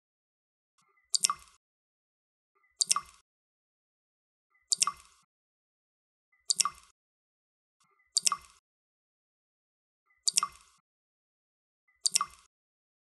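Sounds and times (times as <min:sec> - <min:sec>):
water dripping: 0:01.1 - 0:01.6, 0:02.8 - 0:03.2, 0:04.7 - 0:05.2, 0:06.5 - 0:06.9, 0:08.2 - 0:08.6, 0:10.3 - 0:10.8, 0:12.0 - 0:12.5.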